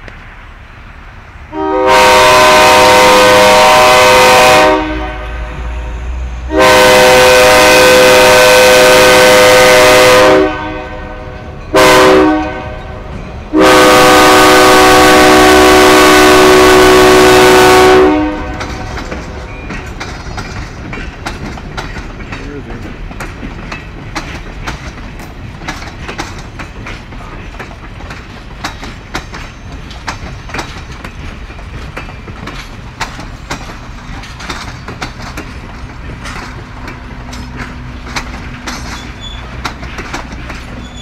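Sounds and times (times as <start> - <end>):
train cars clacking on rails: 0.0 - 41.0
locomotive air horn blasts: 1.5 - 18.9.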